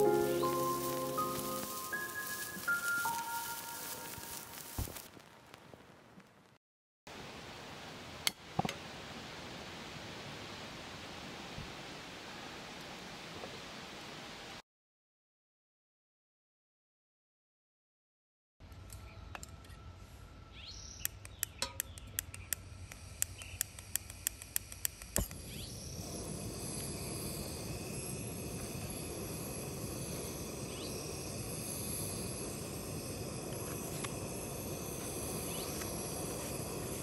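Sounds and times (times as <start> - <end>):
gas burner hissing: 0.0 - 5.1, 22.1 - 37.0
piezo igniter clicking: 21.0 - 25.7.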